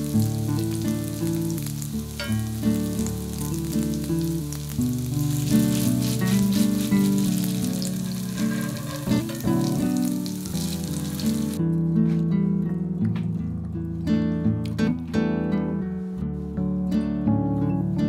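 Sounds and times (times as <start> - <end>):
patties sizzling in hot oil: 0.0 - 11.6
background music: 0.0 - 18.0.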